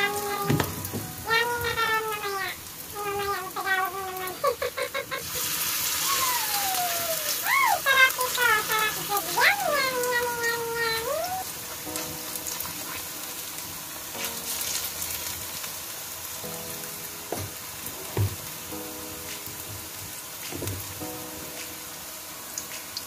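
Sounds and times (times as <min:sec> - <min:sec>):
patties sizzling in oil: 0:00.0 - 0:23.0.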